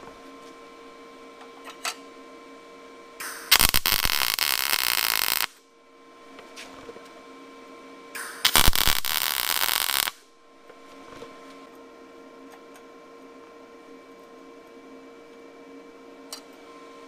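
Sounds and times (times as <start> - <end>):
welder arc crackling: 3.2 - 5.6, 8.2 - 10.2.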